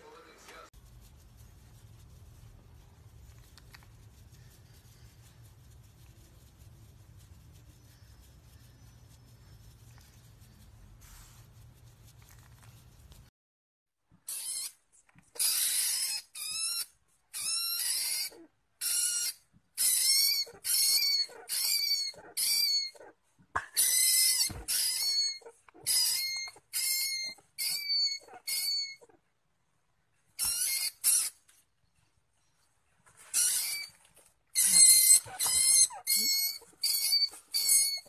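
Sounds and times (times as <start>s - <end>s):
rat squealing: 14.3s - 29.2s, 30.4s - 31.4s, 33.3s - 38.0s.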